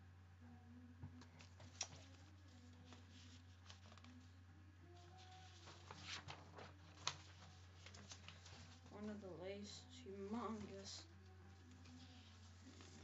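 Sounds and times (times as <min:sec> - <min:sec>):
low room hum: 0:00.0 - 0:13.0
paper rustling: 0:01.2 - 0:04.3, 0:04.9 - 0:09.4, 0:10.2 - 0:13.0.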